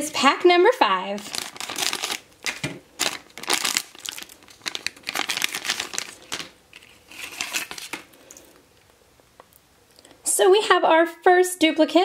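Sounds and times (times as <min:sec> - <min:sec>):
foil packet crinkling and tearing: 0:01.2 - 0:08.4.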